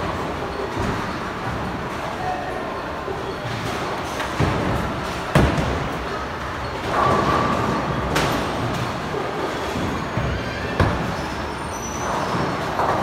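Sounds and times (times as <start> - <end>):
bowling balls rumbling down lanes: 3.3 - 13.0.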